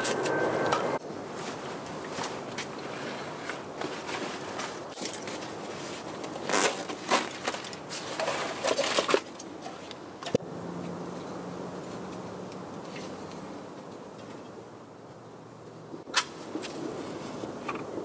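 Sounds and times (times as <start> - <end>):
rucksack fabric rustling: 1.3 - 9.9.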